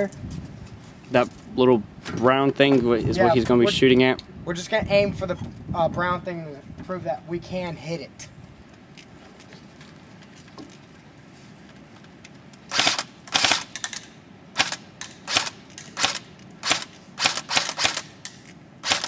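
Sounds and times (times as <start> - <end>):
airsoft rifle shots: 12.7 - 19.0.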